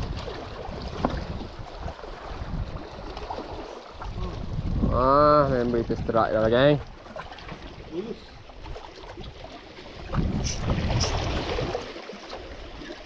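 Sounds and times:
waves washing against rocks: 0:00.0 - 0:03.8, 0:09.8 - 0:13.0
wind buffeting microphone: 0:00.0 - 0:07.0, 0:07.6 - 0:11.9.

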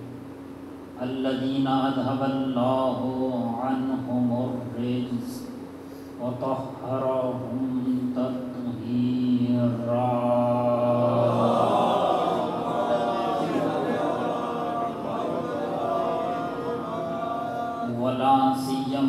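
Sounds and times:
man chanting: 0:01.0 - 0:05.5, 0:06.2 - 0:19.0
crowd chanting in unison: 0:11.0 - 0:17.9.

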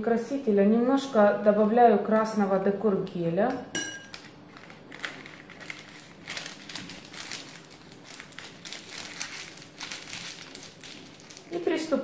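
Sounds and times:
plastic piping cone crinkling: 0:04.0 - 0:12.0.

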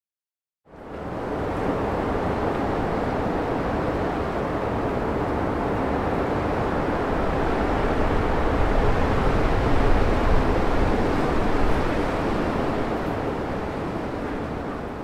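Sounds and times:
steady wind: 0:00.7 - 0:15.0
wind buffeting microphone: 0:00.9 - 0:15.0.

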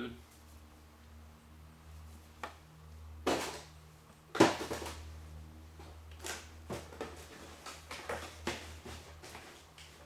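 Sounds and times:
knocks and clatters of tools: 0:04.3 - 0:05.0, 0:06.1 - 0:10.0.

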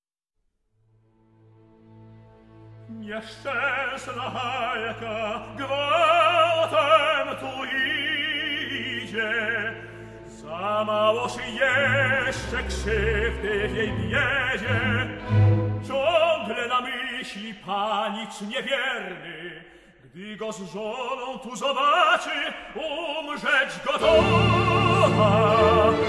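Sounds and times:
orchestra playing: 0:01.4 - 0:16.7, 0:23.9 - 0:26.0
operatic tenor singing: 0:02.8 - 0:26.0.

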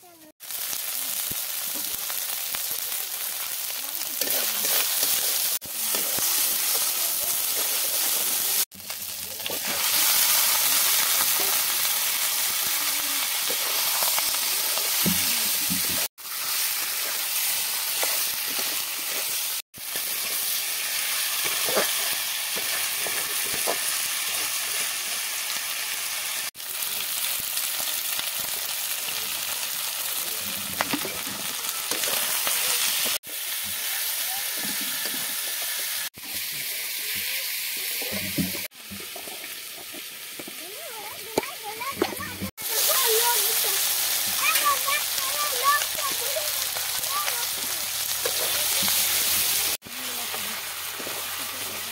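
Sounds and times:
chicken sizzling in hot oil: 0:00.0 - 0:51.9
spatula scraping pan: 0:04.2 - 0:08.7, 0:47.5 - 0:49.6.

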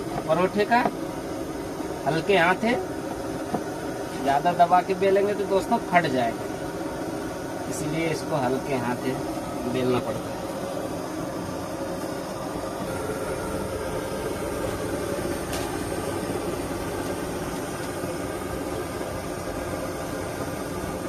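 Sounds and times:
stove burner roaring: 0:00.0 - 0:21.0.

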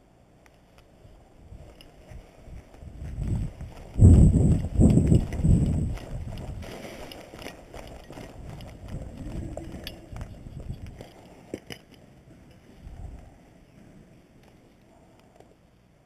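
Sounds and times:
running footsteps: 0:01.6 - 0:11.5
gear jostling: 0:01.6 - 0:11.9.

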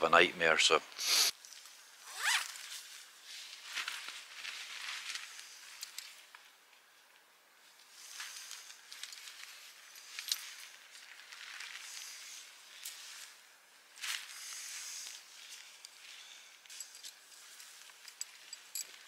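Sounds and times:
tent fabric rustling: 0:02.0 - 0:06.2, 0:07.8 - 0:18.5.

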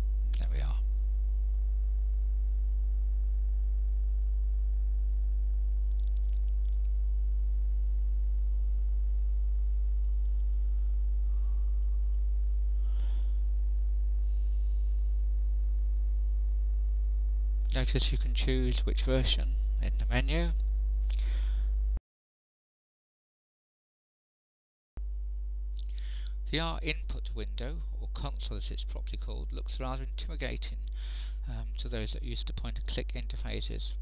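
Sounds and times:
faint soft noises: 0:00.0 - 0:00.9
electrical mains hum: 0:00.0 - 0:22.0, 0:25.0 - 0:34.0.

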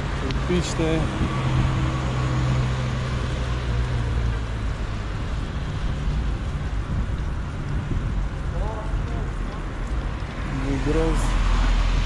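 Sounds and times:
wind on microphone: 0:00.0 - 0:02.9, 0:05.0 - 0:10.4
street traffic: 0:00.0 - 0:12.0.

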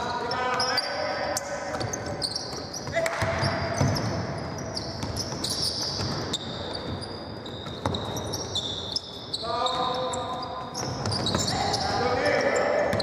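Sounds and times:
hollow sports hall noise: 0:00.0 - 0:13.0
sneakers squeaking: 0:00.0 - 0:13.0
basketball bouncing: 0:01.7 - 0:07.0.

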